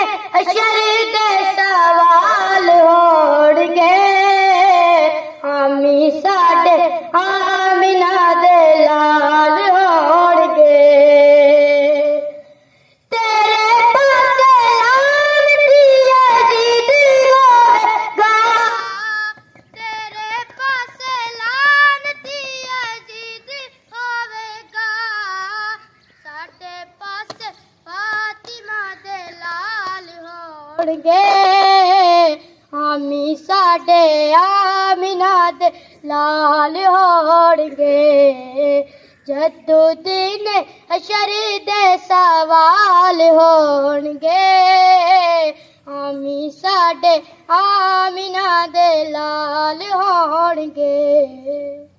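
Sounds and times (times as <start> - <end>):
boy singing over loudspeakers: 0.0 - 51.9
faint high-pitched tone: 18.4 - 30.7.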